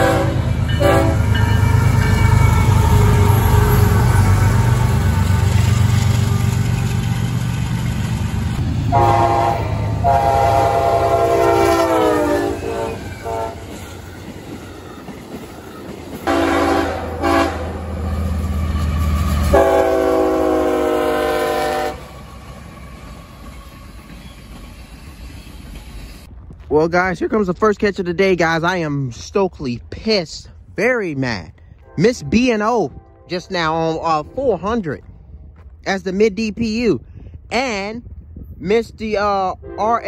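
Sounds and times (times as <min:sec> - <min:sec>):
locomotive horn blasts: 0:00.0 - 0:01.6, 0:08.9 - 0:13.8, 0:16.3 - 0:18.0, 0:19.4 - 0:22.2
passing train rumble: 0:00.0 - 0:40.0.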